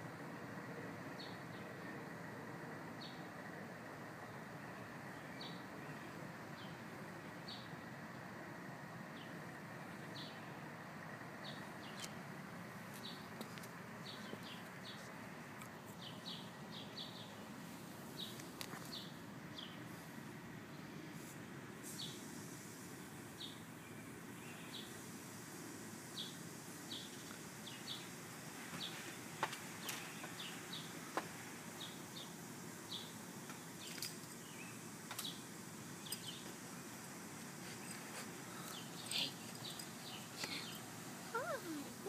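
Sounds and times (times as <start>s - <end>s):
low background hum: 0.0s - 42.0s.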